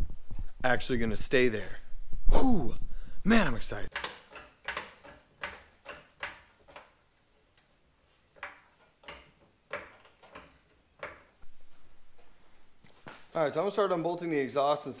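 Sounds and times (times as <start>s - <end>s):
floor jack pumping clicks: 3.9s - 7.0s.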